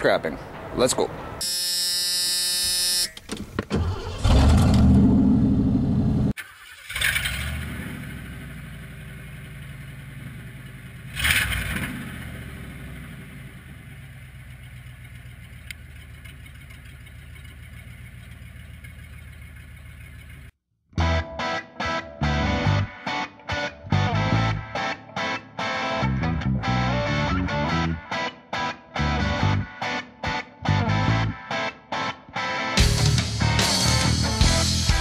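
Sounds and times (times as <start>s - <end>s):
engine cranking and revving: 3.4s - 20.5s.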